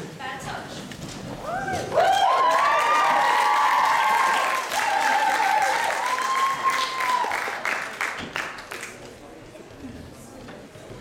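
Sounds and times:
audience cheering and applauding: 1.6 - 8.9.

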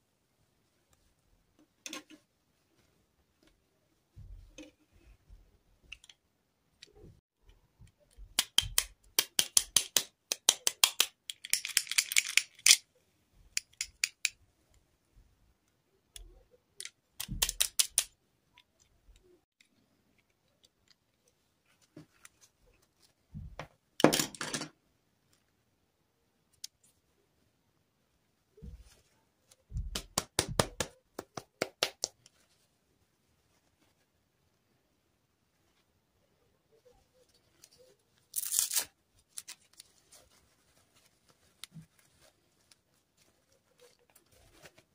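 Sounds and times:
clicks and taps of plastic dolls: 6.8 - 12.8, 13.5 - 14.8, 16.0 - 22.3, 29.7 - 32.4.

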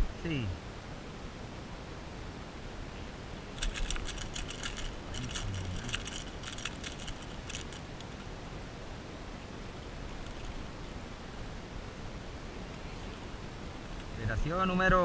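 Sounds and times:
wind: 0.0 - 15.0
fishing tackle clicking and jingling: 3.6 - 8.2, 10.2 - 10.6.

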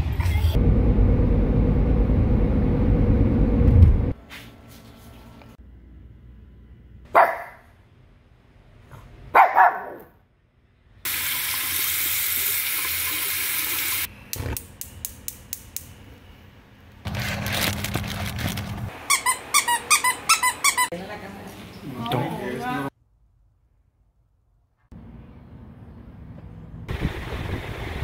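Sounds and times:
faucet water running into sink: 11.1 - 14.1
squeaky toy squeezed: 19.0 - 20.9.

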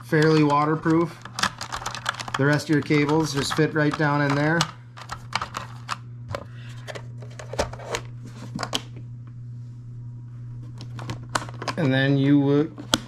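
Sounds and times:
clicks and rustles of wire and plastic: 0.0 - 8.8
steady low hum: 0.0 - 13.0.

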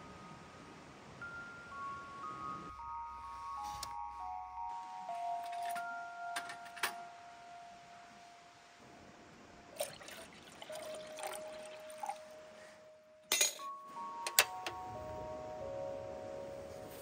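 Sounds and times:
soft background music: 0.0 - 17.0
water pouring into kettle: 9.7 - 12.3
metal kettle clinks: 13.3 - 13.7.

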